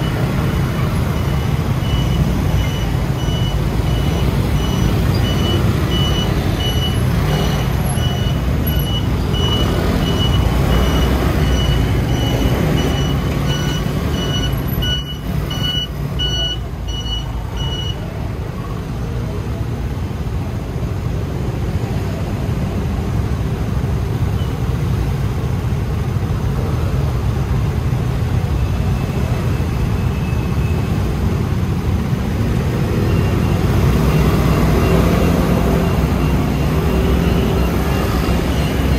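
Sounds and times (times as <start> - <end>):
vehicle reversing beeper: 0.0 - 18.6, 32.5 - 38.9
scooter engine and road rumble: 0.0 - 38.9.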